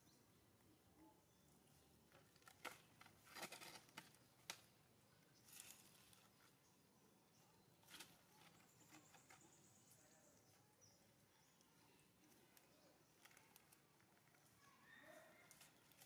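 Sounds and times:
faint bird chirps: 0:05.0 - 0:16.0.

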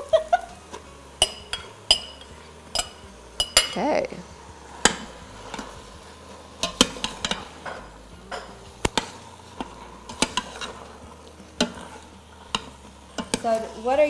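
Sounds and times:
spoon stirring ground beef: 0:00.6 - 0:13.8
spoon clinking against metal pot: 0:01.2 - 0:03.9.

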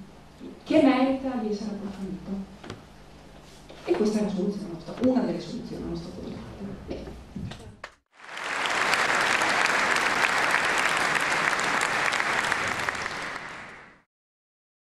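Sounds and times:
audience applause: 0:08.2 - 0:14.0.

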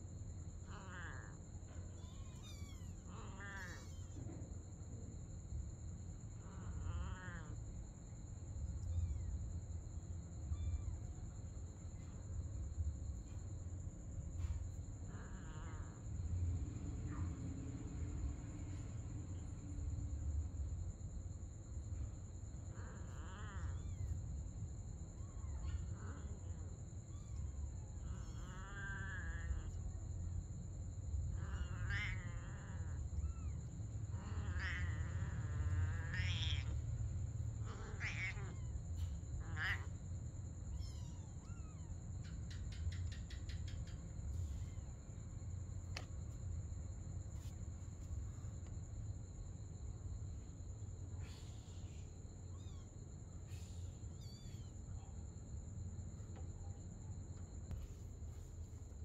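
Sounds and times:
insect trill: 0:00.0 - 0:59.0
cats meowing: 0:00.6 - 0:04.4, 0:06.4 - 0:07.6, 0:10.5 - 0:11.1, 0:22.7 - 0:24.2, 0:25.1 - 0:29.8, 0:31.3 - 0:36.9, 0:37.6 - 0:40.0, 0:40.7 - 0:42.3, 0:51.2 - 0:52.9, 0:53.5 - 0:54.8
kitten mewing: 0:00.6 - 0:04.4, 0:06.4 - 0:07.6, 0:22.7 - 0:24.1, 0:25.2 - 0:29.8, 0:31.3 - 0:36.8, 0:37.6 - 0:40.0.

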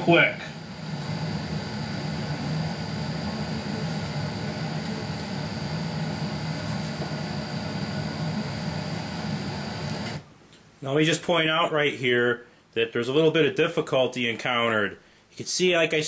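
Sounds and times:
mechanical hum with high whine: 0:00.0 - 0:16.0.

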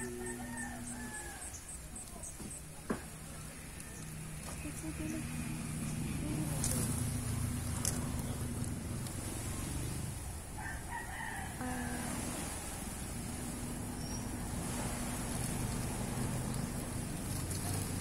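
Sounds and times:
rooster crowing: 0:00.0 - 0:01.6, 0:10.5 - 0:12.8
low hum: 0:00.0 - 0:01.8, 0:11.6 - 0:18.0.

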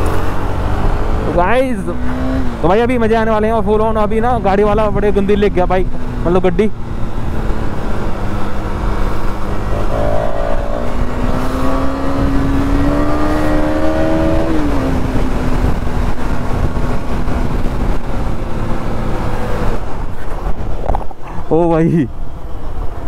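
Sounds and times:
motorcycle engine accelerating: 0:06.9 - 0:20.0
wind on microphone: 0:09.2 - 0:18.5.

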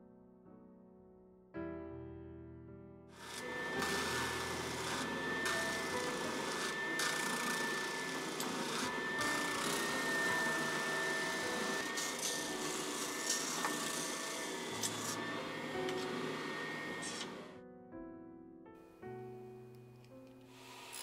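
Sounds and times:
sanding drum whining on acrylic: 0:03.2 - 0:17.5, 0:20.5 - 0:21.0.

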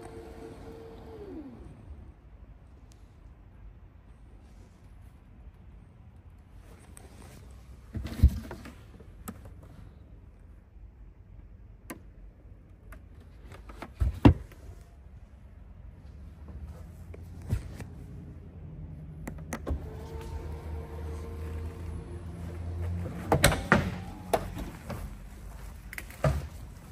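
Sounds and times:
tailgate motor humming: 0:19.5 - 0:25.0.

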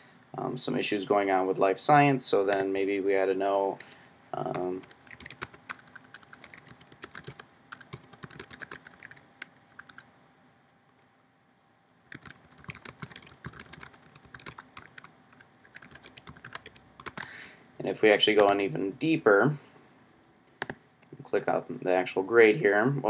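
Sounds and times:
typing on computer keyboard: 0:04.5 - 0:10.0, 0:12.1 - 0:17.3.

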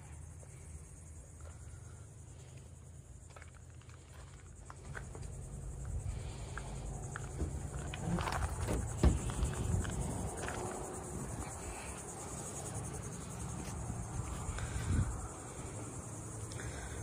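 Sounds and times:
insects buzzing: 0:00.0 - 0:17.0
wind rumble on microphone: 0:05.2 - 0:11.8, 0:13.9 - 0:15.6
knocks and rustles: 0:07.1 - 0:10.8.

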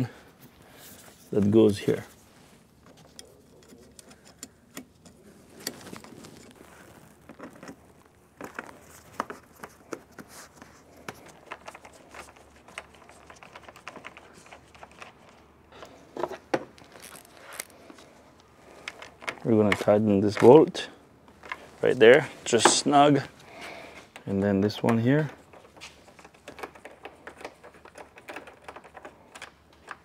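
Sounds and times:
gloved hands clicking and rustling: 0:02.8 - 0:30.0.

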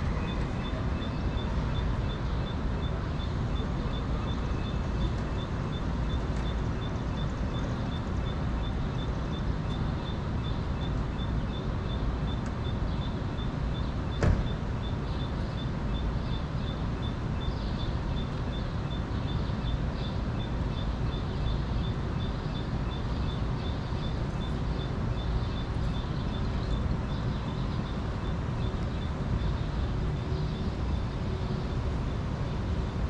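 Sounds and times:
traffic rumble: 0:00.0 - 0:33.0
sharp knock: 0:14.2 - 0:14.5.

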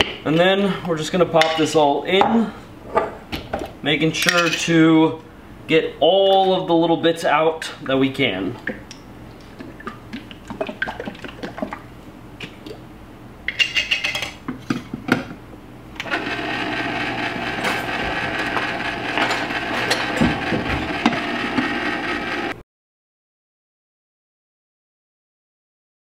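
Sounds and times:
ice cream maker motor hum: 0:16.0 - 0:22.6.

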